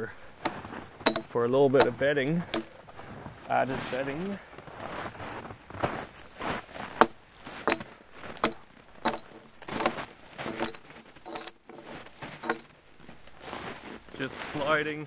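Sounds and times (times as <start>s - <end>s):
axe chopping branches: 0.3s - 3.0s, 5.8s - 12.9s.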